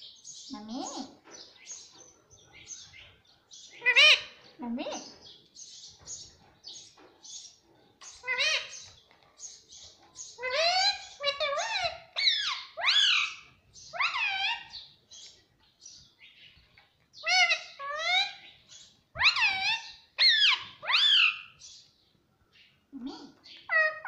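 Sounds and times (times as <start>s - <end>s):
parakeet calling: 10.2s - 14.9s, 19.2s - 21.8s, 23.1s - 24.0s.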